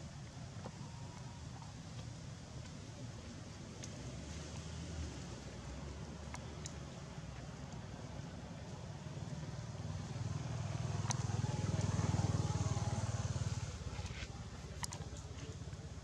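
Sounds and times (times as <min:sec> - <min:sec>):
vehicle engine passing by: 0:09.7 - 0:14.3
sharp clicks: 0:11.0 - 0:11.3.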